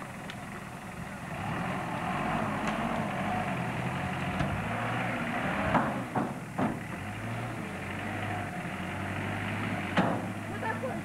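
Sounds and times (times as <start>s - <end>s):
vehicle driving through dry grass: 0.0s - 11.0s
sharp knocks: 5.7s - 6.9s, 10.0s - 10.3s.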